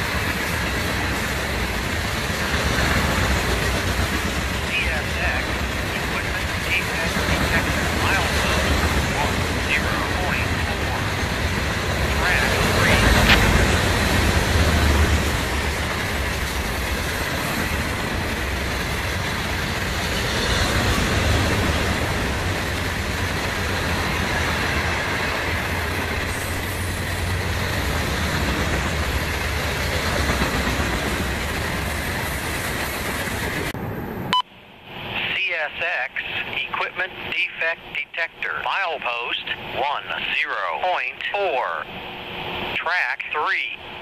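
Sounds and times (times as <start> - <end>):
freight train wheels rumbling: 0.0 - 34.2.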